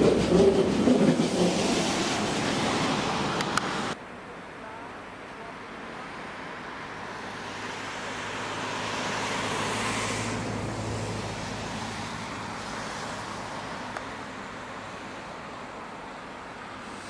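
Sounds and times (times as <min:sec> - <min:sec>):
vehicle passing by: 0:06.6 - 0:15.3.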